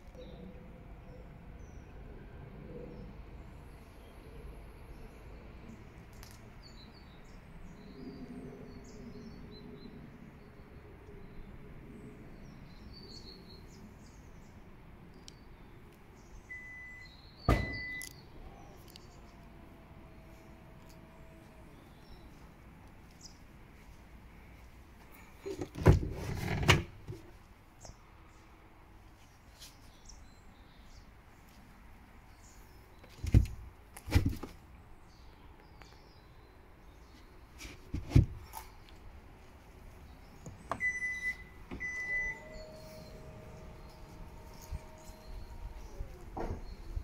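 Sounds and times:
high warning beeps: 0:16.5 - 0:18.1, 0:40.8 - 0:43.3
tailgate motor whine: 0:40.7 - 0:47.0.

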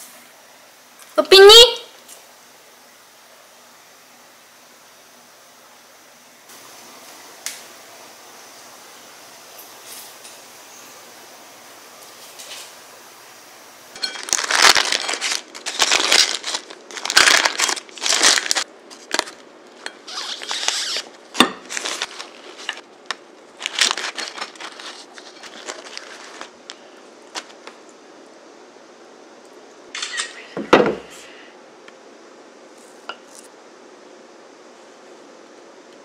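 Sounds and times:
baking parchment crinkling: 0:12.0 - 0:12.8, 0:13.9 - 0:27.8.

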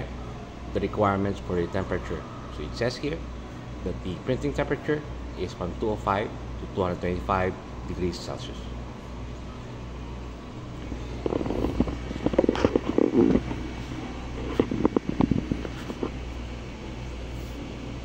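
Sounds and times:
printer fans humming: 0:00.0 - 0:18.0
knocking and rustling handling noise: 0:14.4 - 0:16.2.

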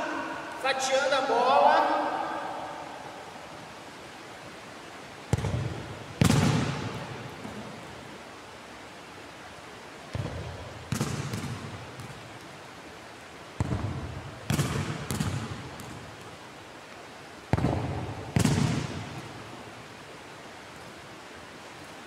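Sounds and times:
ball bouncing thud: 0:05.3 - 0:07.6, 0:10.1 - 0:12.2, 0:13.6 - 0:16.0, 0:17.5 - 0:19.0
ball kicks echoing in hall: 0:05.3 - 0:07.7, 0:10.1 - 0:12.2, 0:13.6 - 0:16.0, 0:17.5 - 0:19.3.

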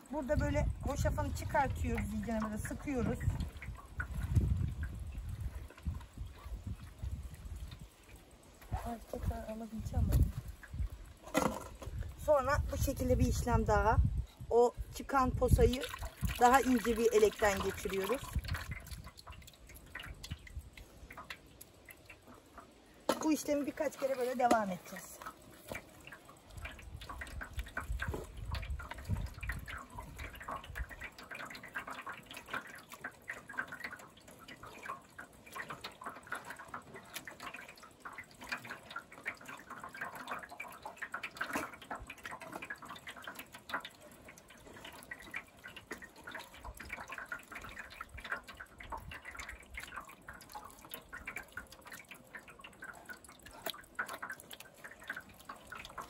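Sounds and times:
juice dripping into metal basin: 0:00.0 - 0:56.0
wet squelching of tomatoes: 0:12.0 - 0:56.0.

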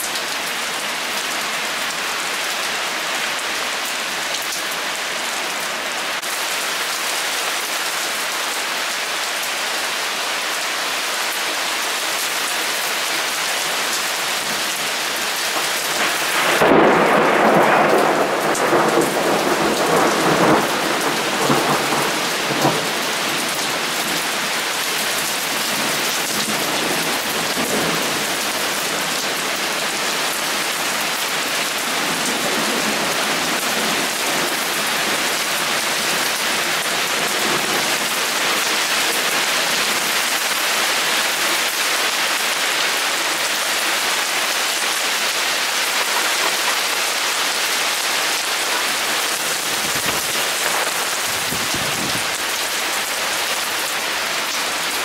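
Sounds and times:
heavy rain pouring: 0:00.0 - 0:55.0
thunder clap rumbling: 0:15.6 - 0:23.3.

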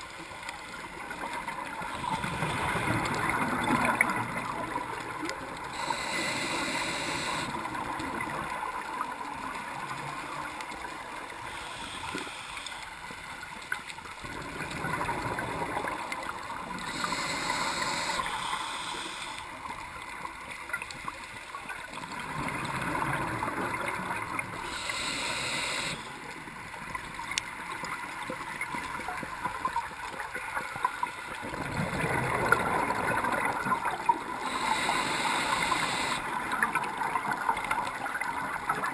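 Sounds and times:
hissing regulator inhalations: 0:05.7 - 0:07.8, 0:11.4 - 0:13.0, 0:16.6 - 0:19.7, 0:24.6 - 0:26.1, 0:34.3 - 0:36.3
bubbling exhaled air: 0:31.5 - 0:36.3.

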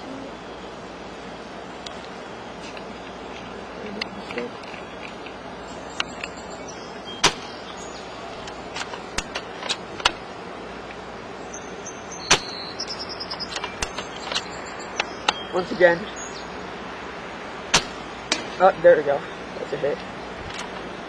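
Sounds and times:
airsoft rifle shots: 0:07.2 - 0:07.6, 0:12.3 - 0:12.6, 0:17.7 - 0:18.6.

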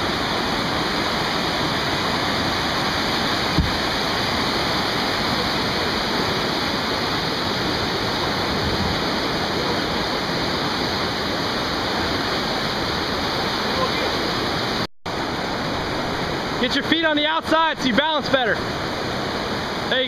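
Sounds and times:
whitewater rapids rushing: 0:00.0 - 0:20.0
brief thump: 0:03.5 - 0:03.8.

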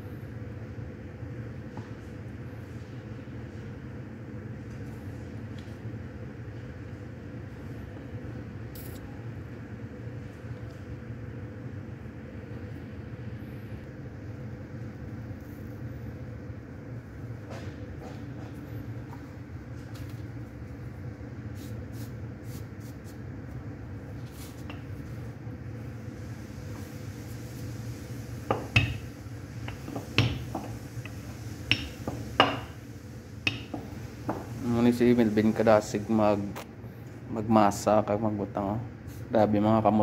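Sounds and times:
low droning hum: 0:00.0 - 0:21.6
rolling pin rolling dough: 0:26.6 - 0:35.6.

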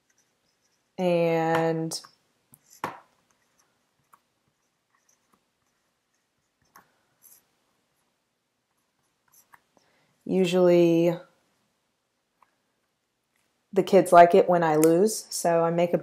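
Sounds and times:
marker tapping on whiteboard: 0:01.5 - 0:03.1.

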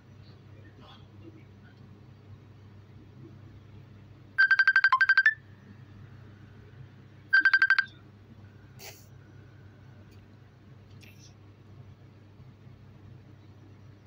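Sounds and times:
electronic ringtone trilling: 0:04.4 - 0:05.5, 0:07.3 - 0:08.0.

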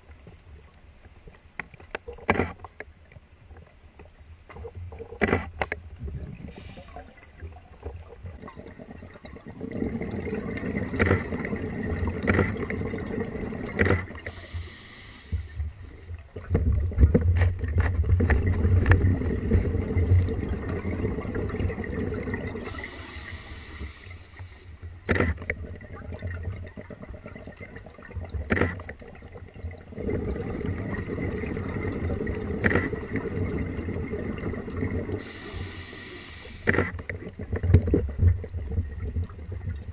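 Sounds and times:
bubbling underwater exhalations: 0:06.0 - 0:14.5, 0:15.9 - 0:23.5, 0:25.2 - 0:35.8
regulator hissing inhalations: 0:06.5 - 0:07.2, 0:14.2 - 0:15.7, 0:22.6 - 0:24.7, 0:35.2 - 0:36.9.

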